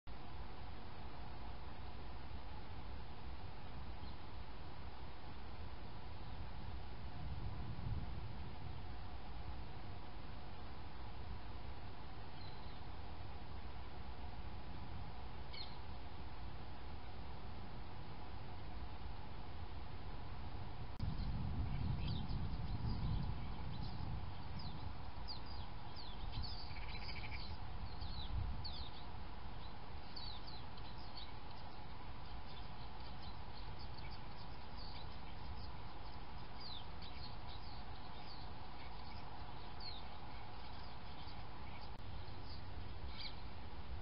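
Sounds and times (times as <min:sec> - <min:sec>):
faint hum: 0:00.1 - 0:44.0
low background rumble: 0:00.1 - 0:44.0
small birds chirping: 0:03.8 - 0:04.5, 0:12.1 - 0:14.0, 0:15.3 - 0:16.2, 0:21.0 - 0:43.8.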